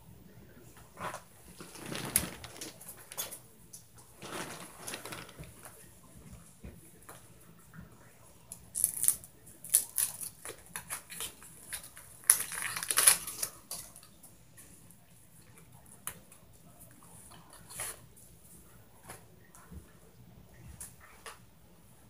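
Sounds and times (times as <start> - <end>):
faint low hum: 0.0 - 22.0
rustling scrapes: 1.0 - 3.4, 4.0 - 5.8.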